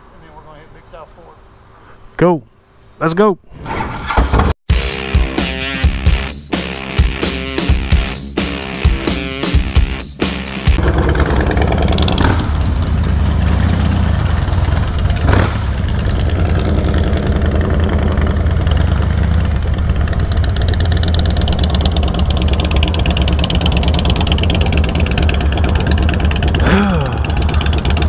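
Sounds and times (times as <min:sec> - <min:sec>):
motorcycle engines rumbling: 0:06.8 - 0:28.0.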